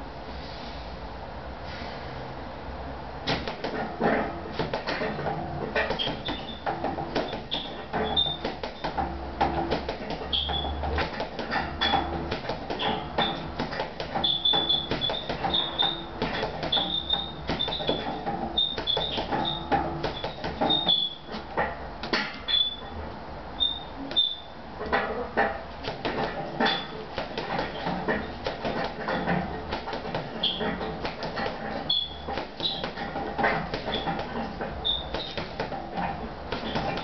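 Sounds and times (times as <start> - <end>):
gloved punches on heavy bag: 3.3 - 22.4, 25.8 - 37.0
short high squeaks: 5.8 - 9.0, 10.2 - 12.1, 12.7 - 21.7, 22.3 - 23.0, 23.6 - 24.6, 26.6 - 29.3, 29.9 - 33.2, 33.8 - 37.0.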